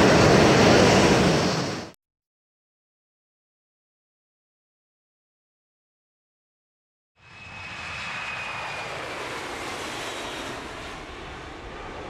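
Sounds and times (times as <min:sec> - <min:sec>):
jet engine whine: 0:00.0 - 0:02.0, 0:07.2 - 0:12.0.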